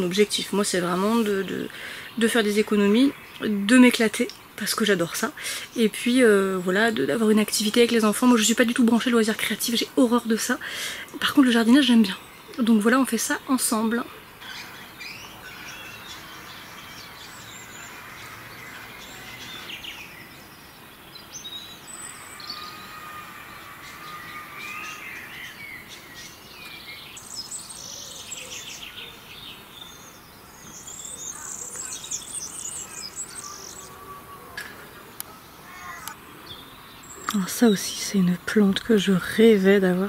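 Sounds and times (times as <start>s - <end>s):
songbirds singing and chirping: 0.0s - 40.0s.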